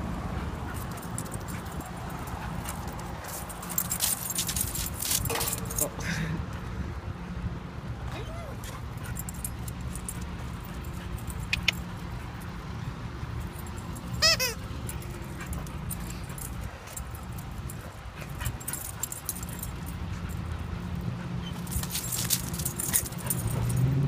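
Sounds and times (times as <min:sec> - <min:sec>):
low traffic hum: 0:00.0 - 0:24.0
collar tags jingling: 0:00.4 - 0:07.3, 0:08.2 - 0:24.0
puppy whining: 0:08.1 - 0:08.8, 0:14.2 - 0:14.6.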